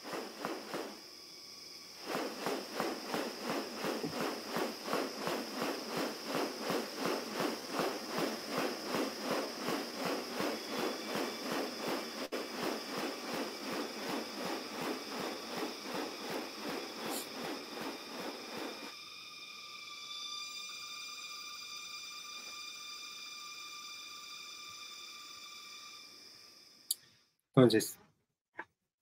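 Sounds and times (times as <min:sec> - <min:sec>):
bird wings rustling: 0:00.0 - 0:01.0, 0:01.9 - 0:18.9.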